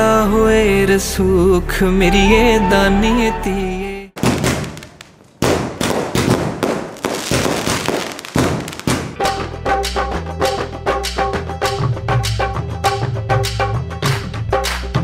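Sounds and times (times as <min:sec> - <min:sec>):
fireworks crackling pops: 0:04.2 - 0:09.2
music with steady beat: 0:08.6 - 0:15.0.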